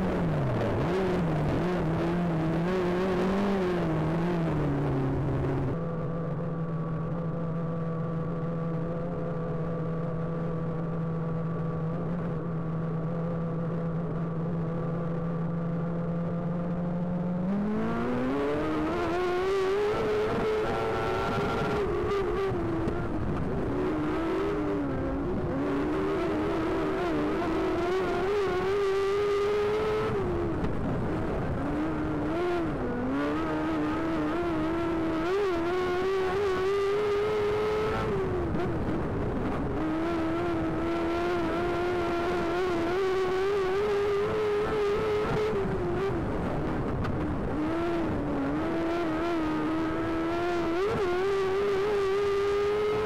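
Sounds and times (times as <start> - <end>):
race car engine revving: 16.7 - 53.0.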